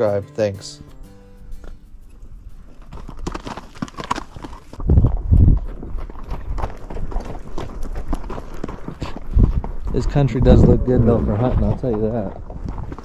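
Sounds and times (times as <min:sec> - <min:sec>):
hooves clip-clopping on dirt: 0:01.4 - 0:13.0.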